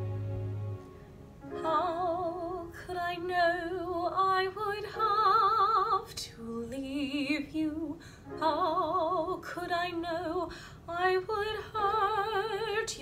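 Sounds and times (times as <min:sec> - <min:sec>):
backing track chord: 0:00.0 - 0:02.5
woman singing operatically: 0:01.6 - 0:13.0.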